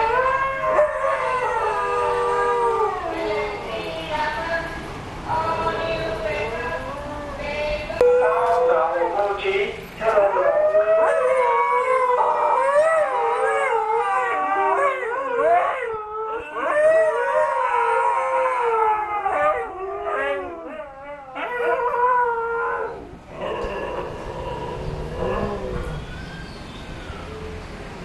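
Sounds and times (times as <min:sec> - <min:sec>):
dogs howling: 0:00.0 - 0:03.7, 0:10.1 - 0:27.5.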